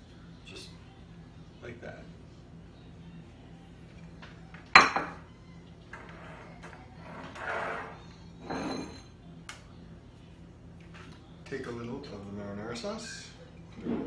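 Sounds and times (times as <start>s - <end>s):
wire rack scraping on baking sheet: 6.0s - 9.0s.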